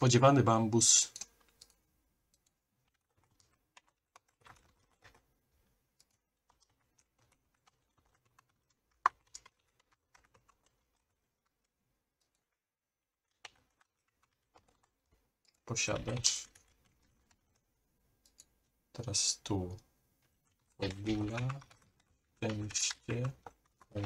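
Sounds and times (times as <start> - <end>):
computer keyboard typing: 0.8 - 5.3, 5.9 - 17.6, 18.2 - 19.8, 20.4 - 24.0.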